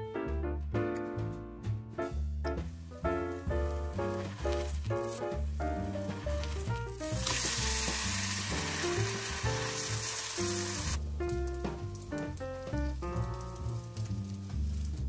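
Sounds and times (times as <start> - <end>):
background music: 0.0 - 15.0
pancake sizzling in oil: 3.3 - 11.0, 11.6 - 15.0.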